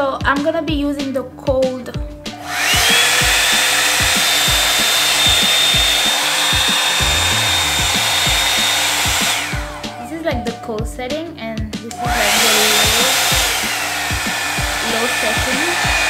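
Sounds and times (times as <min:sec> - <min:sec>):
hair dryer motor whine: 0:02.3 - 0:10.6, 0:11.9 - 0:16.0.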